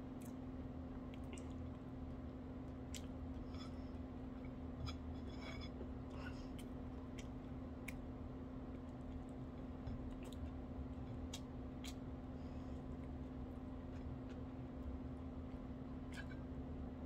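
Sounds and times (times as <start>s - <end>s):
steady low hum: 0.0s - 17.0s
wet chewing: 8.7s - 12.1s.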